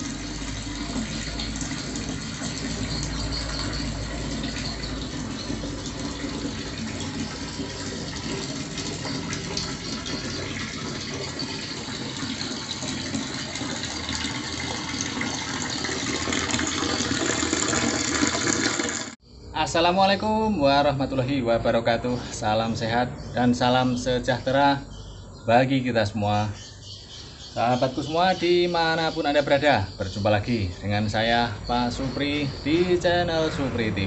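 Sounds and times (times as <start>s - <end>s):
water pouring into a tank: 0.0s - 19.2s.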